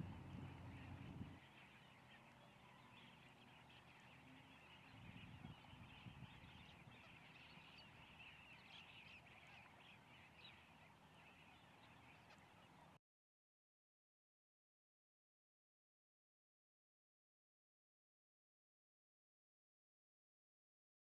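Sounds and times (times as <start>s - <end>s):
distant waterbirds calling: 0.0s - 13.0s.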